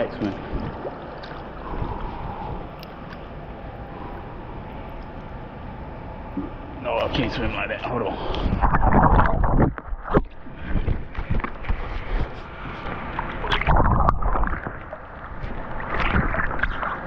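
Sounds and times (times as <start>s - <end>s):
pool water splashing: 0.0s - 3.4s, 11.5s - 17.0s.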